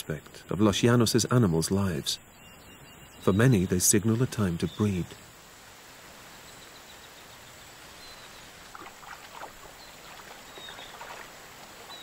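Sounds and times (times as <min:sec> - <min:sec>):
rain falling on water: 0:04.3 - 0:12.0
faint high chirps: 0:09.6 - 0:12.0.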